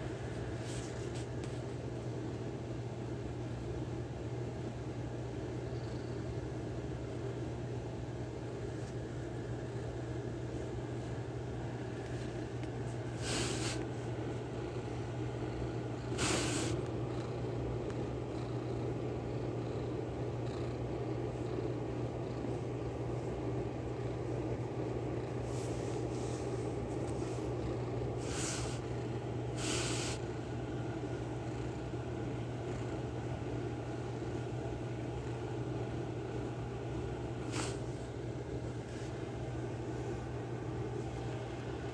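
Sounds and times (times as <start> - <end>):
steady low hum: 0.0 - 41.9
kitten purring: 9.3 - 38.1.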